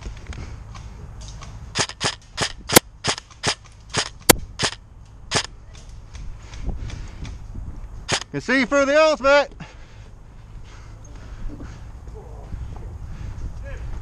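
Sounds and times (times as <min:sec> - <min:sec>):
airsoft rifle shots: 0:01.7 - 0:05.5, 0:08.1 - 0:08.3
wind rumble on microphone: 0:05.8 - 0:08.1, 0:11.3 - 0:14.0.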